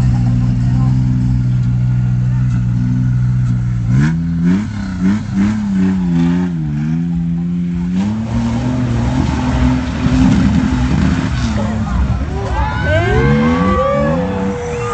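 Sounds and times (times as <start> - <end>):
engine revving hard: 3.8 - 12.0, 12.8 - 14.9.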